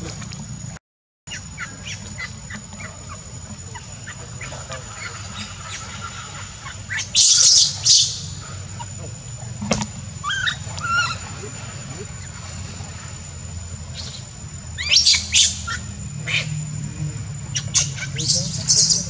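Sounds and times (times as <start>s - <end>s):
animal chirping: 1.3s - 9.0s, 10.2s - 13.2s, 13.8s - 16.7s, 17.4s - 19.0s
animal screeching: 10.2s - 12.3s
animal squeaking: 10.2s - 12.4s, 13.9s - 16.6s, 17.5s - 19.0s.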